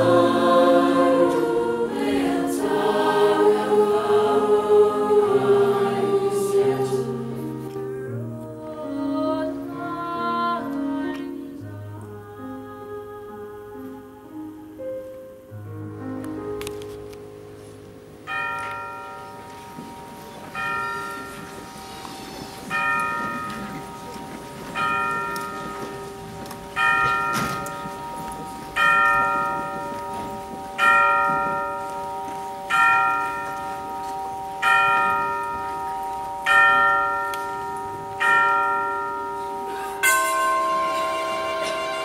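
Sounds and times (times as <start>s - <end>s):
bell strikes ringing: 34.6s - 42.0s.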